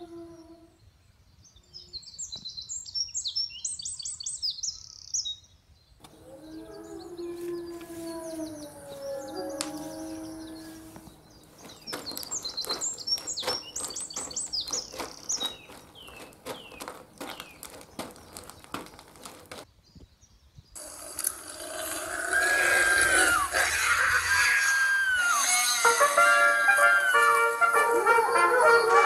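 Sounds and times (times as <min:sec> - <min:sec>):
howl: 0:00.0 - 0:00.8, 0:06.1 - 0:11.1
birds chirping: 0:00.0 - 0:27.2.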